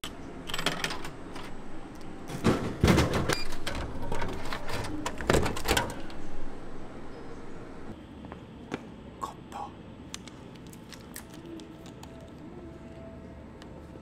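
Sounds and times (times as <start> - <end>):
items clattering and rustling: 2.3 - 6.2.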